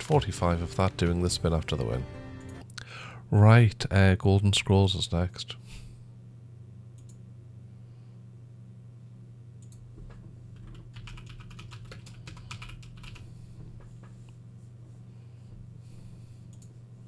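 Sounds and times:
steady low hum: 0:00.0 - 0:17.0
keyboard typing: 0:10.6 - 0:13.2.

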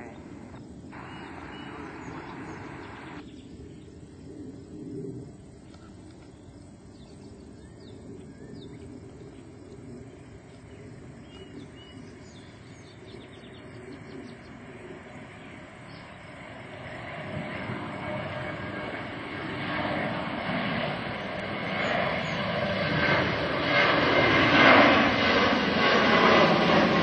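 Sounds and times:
small birds chirping: 0:00.0 - 0:04.7, 0:05.4 - 0:17.0
distant jet airliner rumble: 0:00.0 - 0:27.0.

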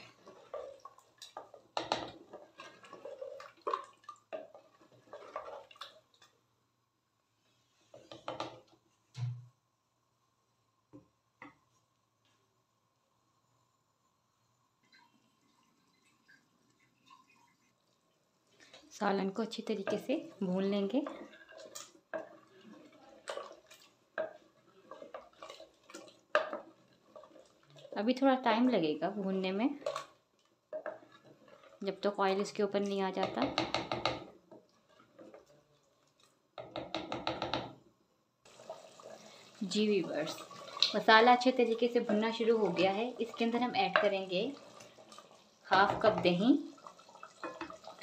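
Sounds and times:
wooden spoon scraping clay pot: 0:00.0 - 0:05.8, 0:18.7 - 0:28.0.

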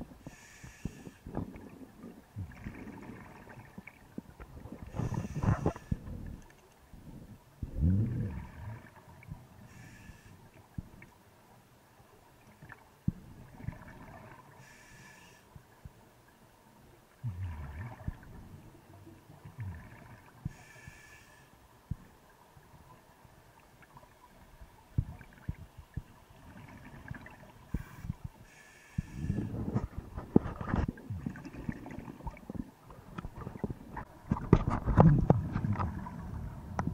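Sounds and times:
hissing regulator inhalations: 0:00.3 - 0:01.2, 0:04.9 - 0:06.0, 0:27.7 - 0:29.6
bubbling exhalations: 0:07.6 - 0:08.9, 0:19.5 - 0:20.3, 0:29.3 - 0:36.9.

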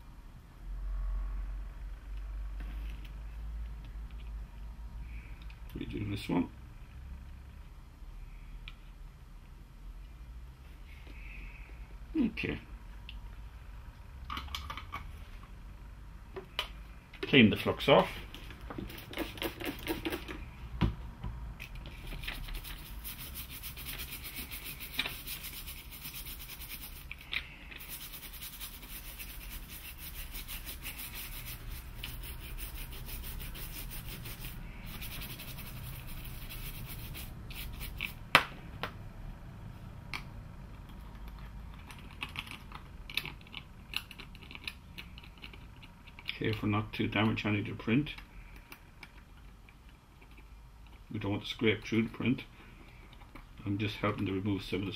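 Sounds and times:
toothbrush scrubbing circuit board: 0:22.0 - 0:38.2.

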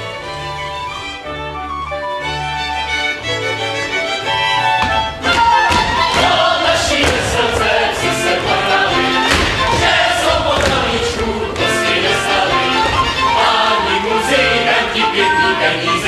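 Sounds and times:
fiddle music: 0:00.0 - 0:16.0
feet stamping on stage: 0:04.7 - 0:13.3
people singing together: 0:05.4 - 0:16.0.

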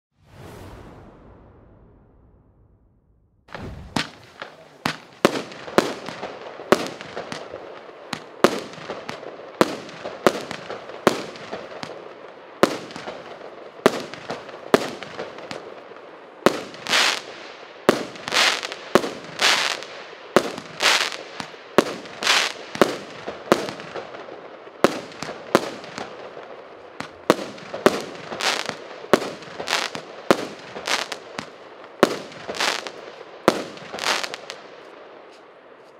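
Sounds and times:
fireworks shot reports: 0:00.2 - 0:06.1
fireworks crackling: 0:03.5 - 0:35.6.

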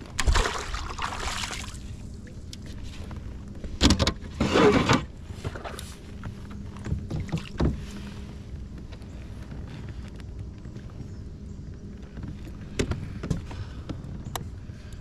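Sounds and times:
kayak paddle splashing: 0:00.1 - 0:02.0.

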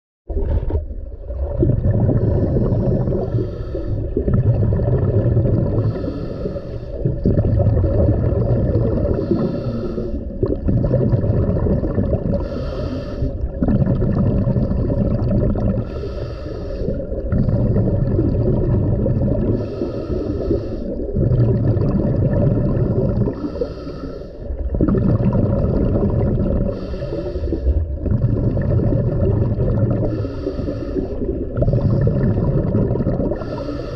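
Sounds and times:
bubbling exhale: 0:00.3 - 0:33.9
regulator hissing inhale: 0:02.4 - 0:04.1, 0:05.8 - 0:07.1, 0:09.1 - 0:10.4, 0:12.4 - 0:13.5, 0:15.8 - 0:17.7, 0:19.5 - 0:21.2, 0:23.3 - 0:24.6, 0:26.7 - 0:27.9, 0:30.0 - 0:32.2, 0:33.3 - 0:33.9.

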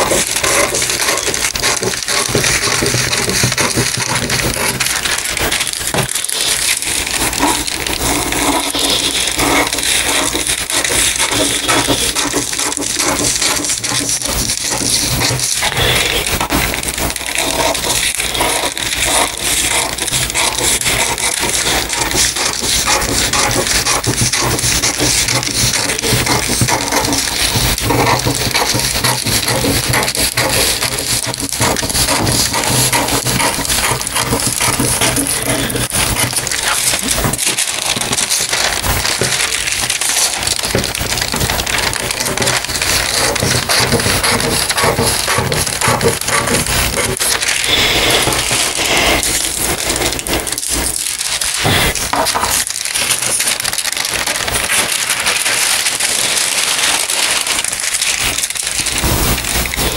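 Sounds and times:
paper crackling and rustling: 0:00.0 - 0:59.9
scissors cutting paper: 0:00.0 - 0:59.9.

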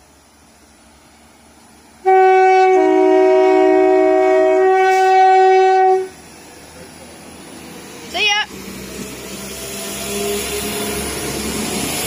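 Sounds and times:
two-tone train horn blast: 0:02.0 - 0:06.2.

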